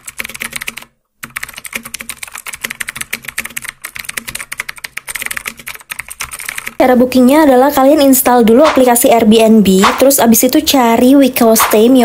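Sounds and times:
fast typing on computer keyboard: 0:00.0 - 0:06.8.

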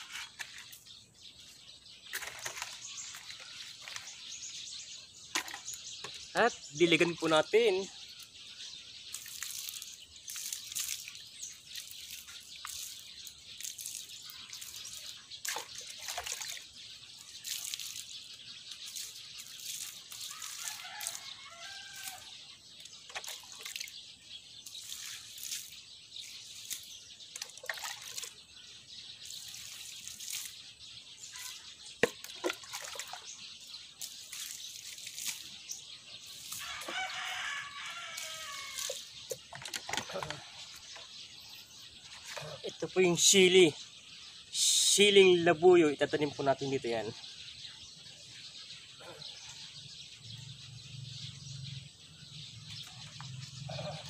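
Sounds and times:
water splashing onto soil: 0:09.0 - 0:24.0, 0:24.6 - 0:41.2.

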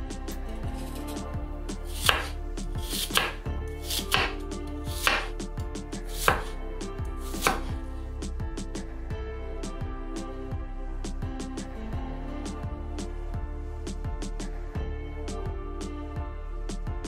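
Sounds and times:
soft background music: 0:00.0 - 0:17.0
knife slicing apple on board: 0:01.9 - 0:05.4, 0:06.1 - 0:06.5, 0:07.2 - 0:07.7.

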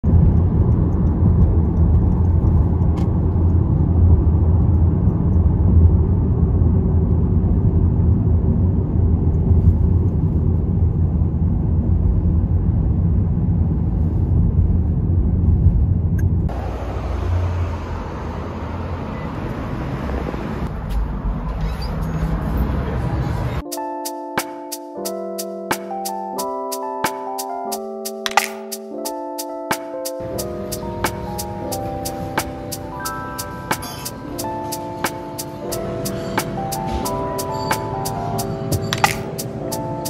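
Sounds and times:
car driving rumble: 0:00.0 - 0:23.6.

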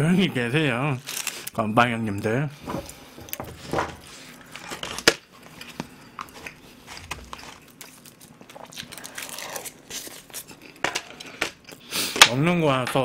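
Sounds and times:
dried seaweed crinkling: 0:00.9 - 0:01.6, 0:04.0 - 0:10.8
chewing: 0:05.5 - 0:11.9.

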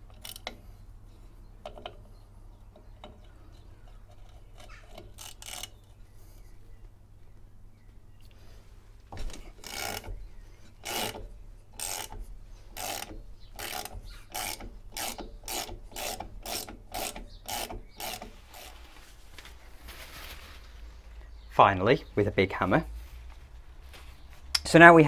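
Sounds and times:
ratchet wrench clicking: 0:00.1 - 0:00.6, 0:03.9 - 0:05.8, 0:09.3 - 0:18.8.

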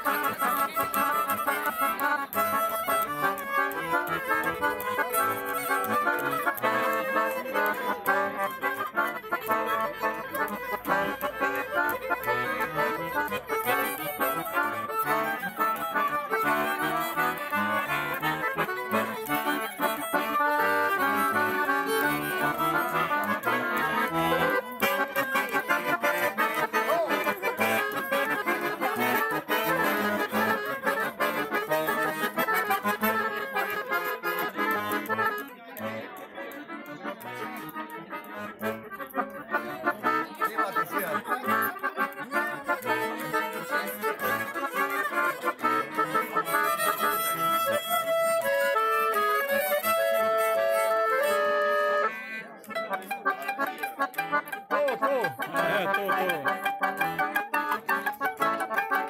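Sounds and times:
button accordion: 0:00.0 - 0:59.0
violin: 0:00.0 - 0:59.0.

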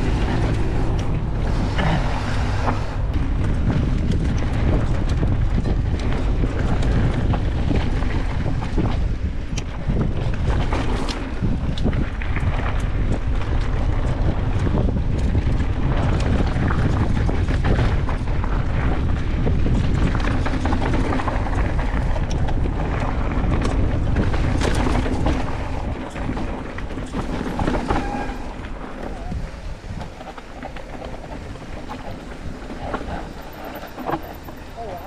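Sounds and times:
bike rattling clicks and knocks: 0:00.0 - 0:35.0
tyre noise on dirt: 0:00.0 - 0:35.0
wind buffeting microphone: 0:00.0 - 0:35.0.

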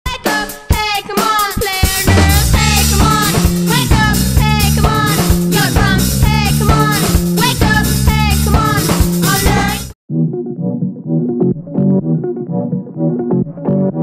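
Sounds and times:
upbeat rock music: 0:00.1 - 0:10.0.

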